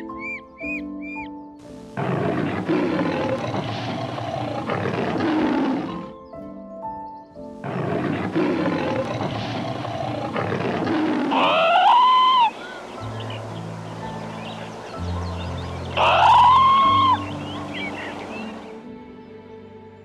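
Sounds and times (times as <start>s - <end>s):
soft piano music: 0.0s - 10.4s, 12.0s - 20.0s
large animal roaring: 2.0s - 6.2s, 7.6s - 12.9s, 15.9s - 18.0s
higher wavering animal call: 11.0s - 18.7s.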